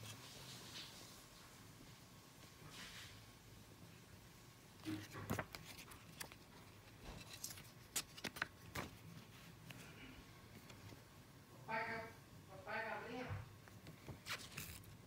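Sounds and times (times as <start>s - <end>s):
paper booklet rustling: 4.8s - 11.0s, 13.7s - 15.0s.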